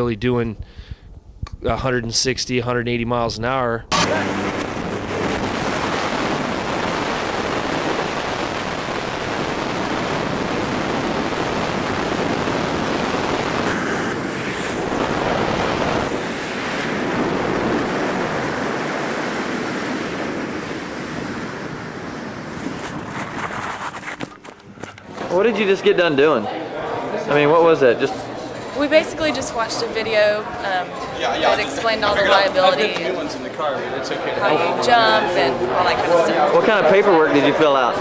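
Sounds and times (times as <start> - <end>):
wind rushing over microphone: 4.2 - 24.3.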